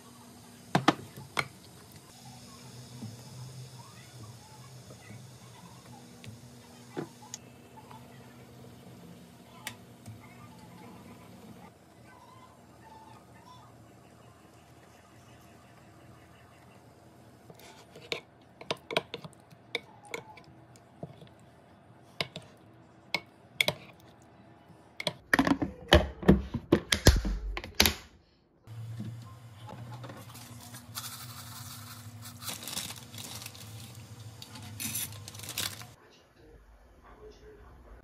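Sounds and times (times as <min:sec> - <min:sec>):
water heating hum and hiss: 0:00.0 - 0:11.7, 0:28.7 - 0:38.0.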